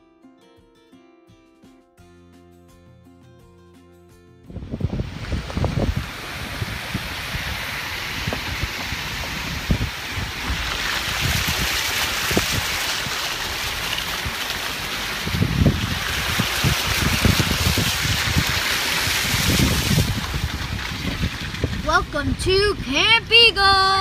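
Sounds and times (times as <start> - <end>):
wind buffeting microphone: 4.5 - 24.0
river water rushing over weir: 4.6 - 21.8.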